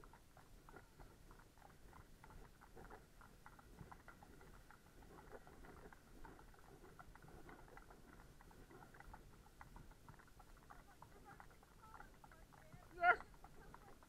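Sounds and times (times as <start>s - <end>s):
faint low rumble: 0.0s - 14.0s
horse hooves on wet tarmac: 0.0s - 14.0s.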